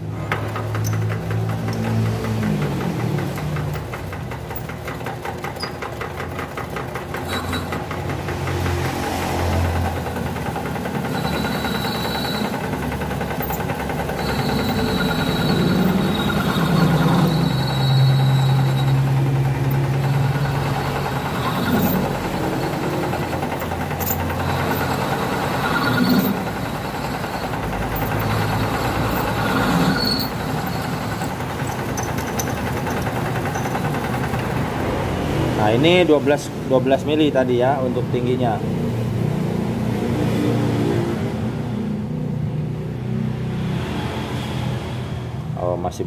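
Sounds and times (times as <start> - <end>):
lathe motor hum: 0.0 - 36.7
high whine of cutting tool: 10.8 - 34.2.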